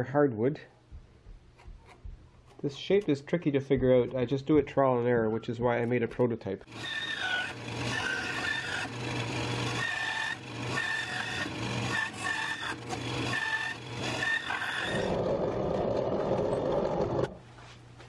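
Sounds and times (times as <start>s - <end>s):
bandsaw cutting wood: 6.7s - 17.4s
drill press boring into wood: 6.7s - 17.4s.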